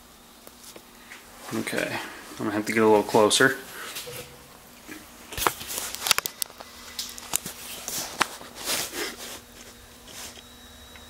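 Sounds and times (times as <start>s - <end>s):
faint steady hum: 0.0s - 11.0s
camera handling clicks and rustles: 5.4s - 7.5s.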